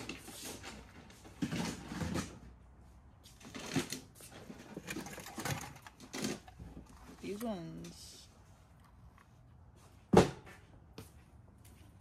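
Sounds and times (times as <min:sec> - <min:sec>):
toy train cars clicking and knocking: 0:03.4 - 0:08.1.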